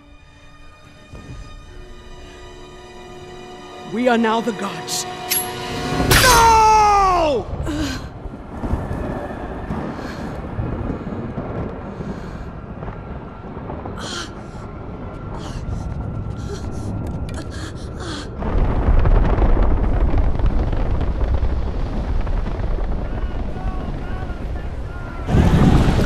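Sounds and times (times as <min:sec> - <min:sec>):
deep rumble: 0:05.8 - 0:26.0
gasps and breathy cries: 0:07.6 - 0:08.2, 0:14.0 - 0:14.6, 0:15.4 - 0:18.4.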